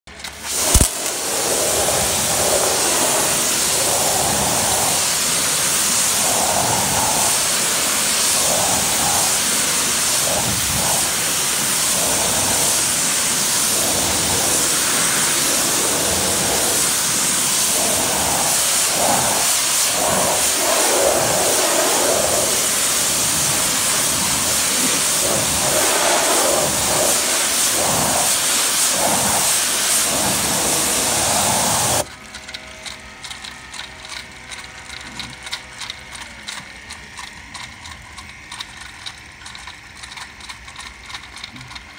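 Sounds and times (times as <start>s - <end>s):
pressure washer spraying: 0.3s - 32.1s.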